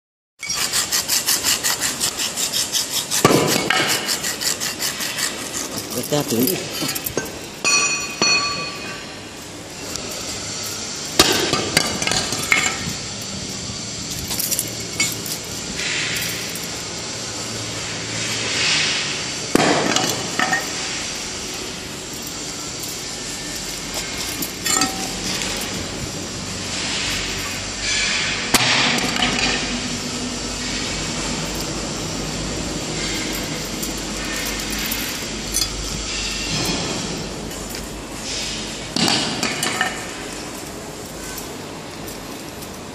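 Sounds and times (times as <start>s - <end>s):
foundry background noise: 0.4s - 42.9s
metal knocks and clinks: 5.4s - 13.0s, 22.0s - 26.0s, 32.8s - 37.9s
metallic clink on iron step: 5.8s - 9.1s, 22.2s - 25.9s.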